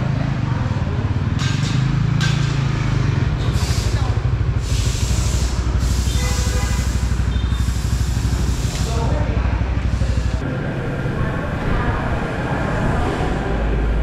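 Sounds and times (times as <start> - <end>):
small motorcycle engine idling: 0.0 - 10.8
hissing noise bursts: 3.3 - 10.4.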